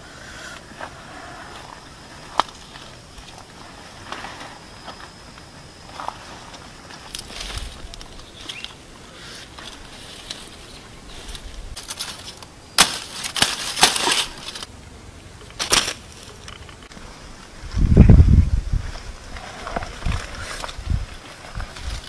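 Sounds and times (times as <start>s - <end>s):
stiff leaves rustling: 0.3s - 22.0s
pineapple stalk cracking: 11.8s - 14.7s, 15.5s - 16.8s.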